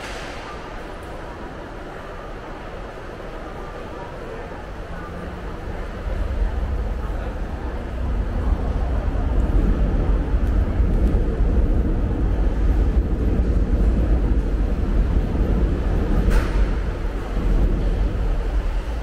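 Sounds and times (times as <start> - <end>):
deep traffic rumble: 0.0 - 19.0.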